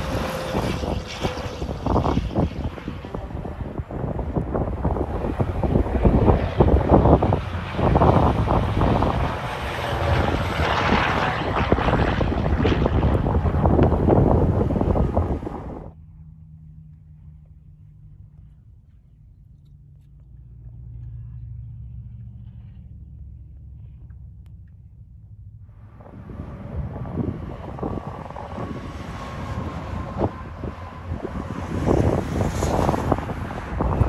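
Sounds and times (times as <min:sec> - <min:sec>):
wind buffeting microphone: 0:00.0 - 0:16.0, 0:25.8 - 0:34.0
highway traffic rush: 0:00.0 - 0:34.0
truck passing rumble: 0:00.0 - 0:34.0.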